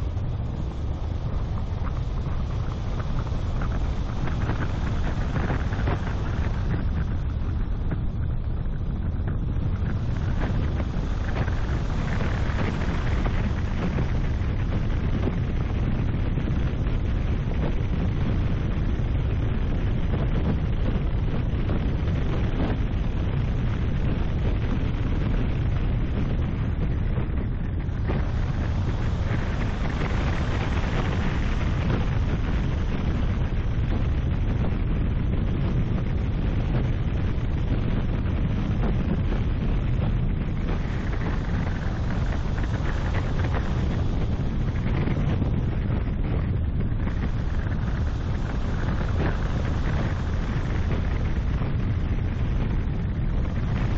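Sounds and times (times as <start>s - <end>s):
car road and engine noise: 0.0s - 53.9s
wind buffeting microphone: 0.0s - 53.9s.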